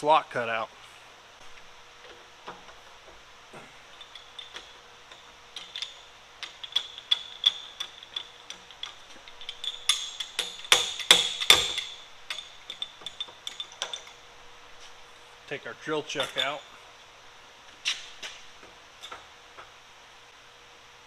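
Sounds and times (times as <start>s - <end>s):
metallic clicks and knocks ringing: 3.9s - 14.3s, 16.0s - 16.8s.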